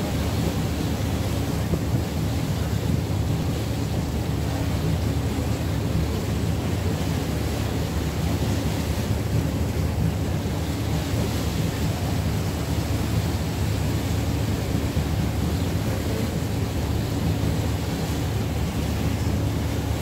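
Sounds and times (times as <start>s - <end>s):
wind noise on microphone: 0.0s - 7.0s
paddle steamer machinery rumble: 0.0s - 20.0s.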